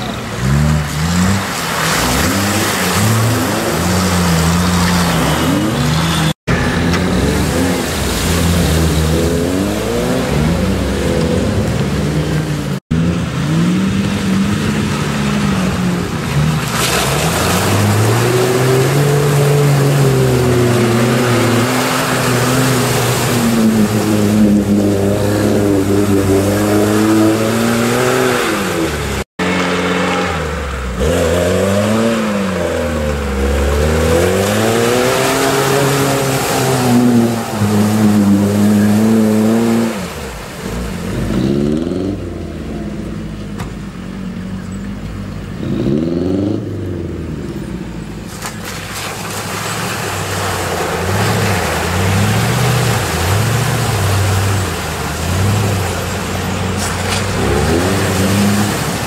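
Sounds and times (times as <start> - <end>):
water splashing: 0.0 - 45.4, 46.8 - 59.0
off-road engines revving: 0.0 - 59.0.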